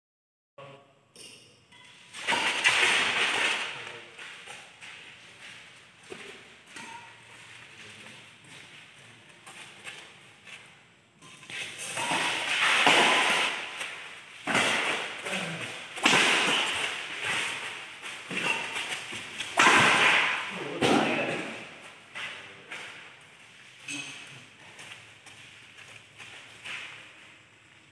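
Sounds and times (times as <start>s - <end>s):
racket hitting shuttlecock: 11.5s - 21.7s
court noises echoing: 11.5s - 27.1s.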